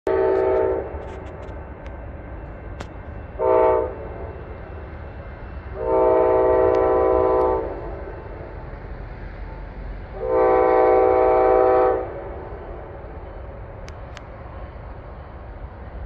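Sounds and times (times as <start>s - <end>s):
train air horn blasts: 0.1s - 1.5s, 3.4s - 4.5s, 5.7s - 8.4s, 10.1s - 12.5s.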